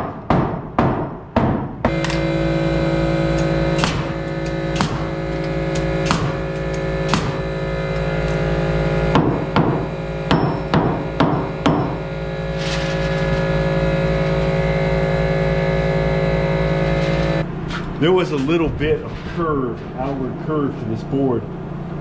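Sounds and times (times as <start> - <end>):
hammer driving nails into wood: 3.8 - 5.1, 5.7 - 7.4.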